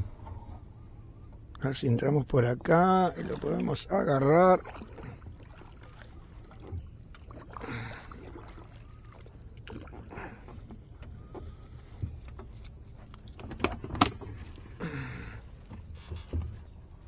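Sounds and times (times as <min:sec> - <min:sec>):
kayak paddle splashing water: 0:03.1 - 0:12.2.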